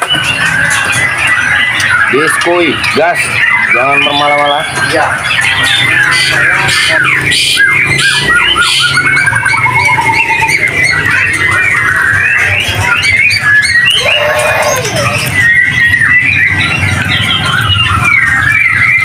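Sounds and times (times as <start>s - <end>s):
birds singing whistles and trills: 0.0s - 19.0s
rapidly repeated bird notes: 0.0s - 19.0s.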